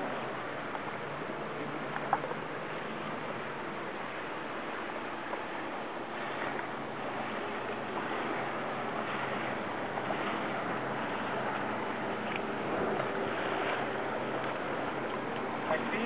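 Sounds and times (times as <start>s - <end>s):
jet ski engine hum: 0.0s - 16.0s
rushing water: 0.0s - 16.0s.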